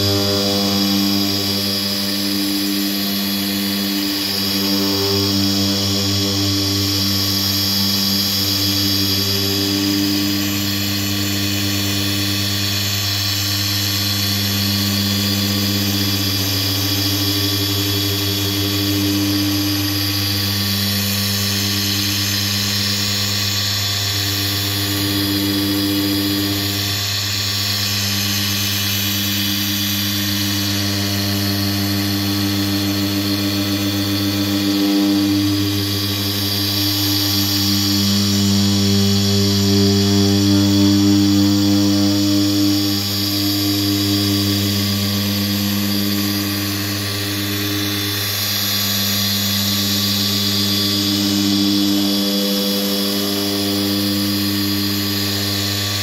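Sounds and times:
polisher motor hum: 0.0s - 56.0s.

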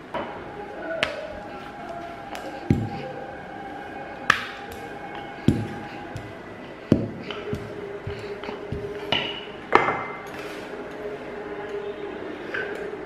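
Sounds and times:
soft background music: 0.0s - 13.0s.

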